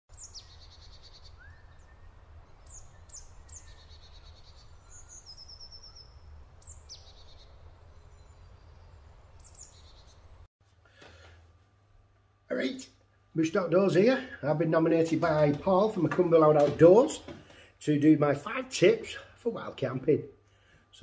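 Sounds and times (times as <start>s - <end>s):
songbird singing with trills: 0.1s - 10.4s.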